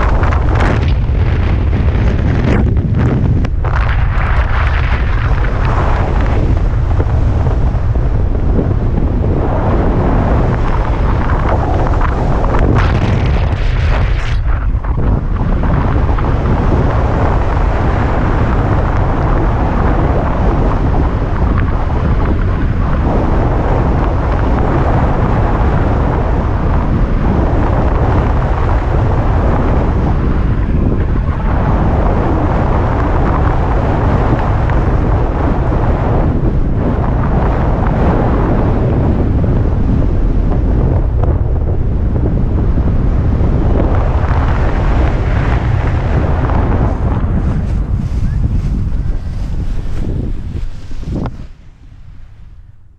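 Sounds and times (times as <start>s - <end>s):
wind rushing over microphone: 0.0s - 52.9s.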